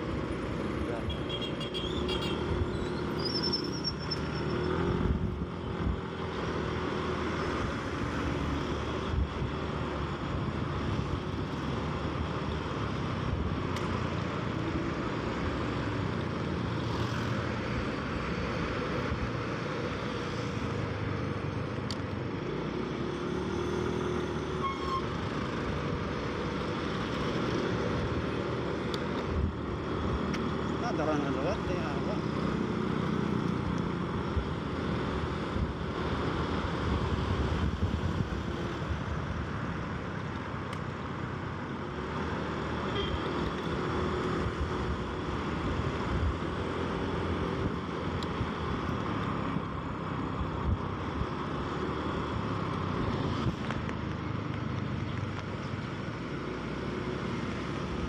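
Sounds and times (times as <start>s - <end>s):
surrounding traffic: 0.0s - 58.0s
wind noise: 36.7s - 39.5s.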